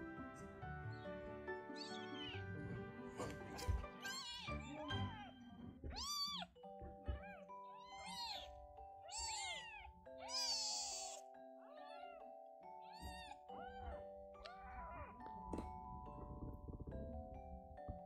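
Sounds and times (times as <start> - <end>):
background music with sustained notes: 0.0 - 18.0
kittens mewing: 1.7 - 2.6, 3.2 - 12.2, 12.8 - 15.2.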